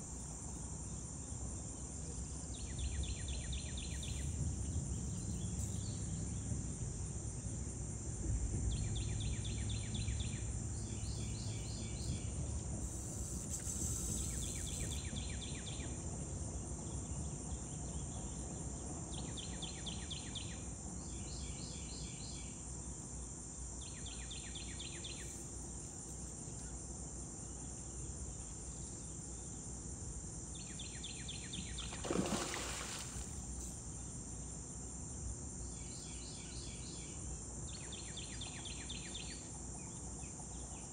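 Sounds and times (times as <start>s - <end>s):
high-pitched insect drone: 11.0s - 15.8s.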